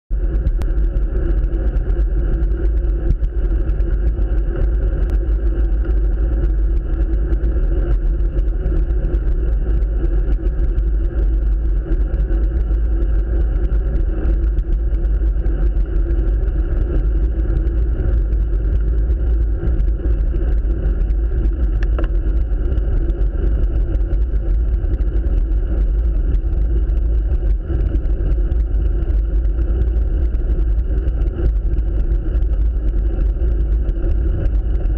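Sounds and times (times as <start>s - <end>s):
wind rumble on microphone: 0.1s - 34.9s.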